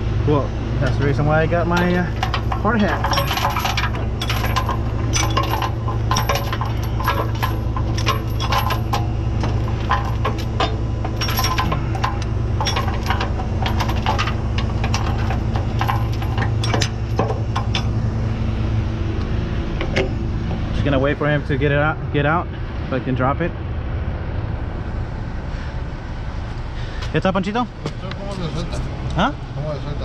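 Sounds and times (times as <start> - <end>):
truck engine idling: 0.0 - 30.0
metal hardware clinking and rattling: 0.8 - 18.1, 19.8 - 21.2.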